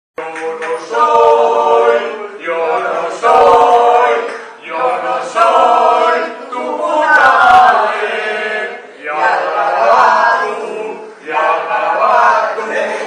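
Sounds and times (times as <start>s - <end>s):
choir singing held chords: 0.2s - 13.0s.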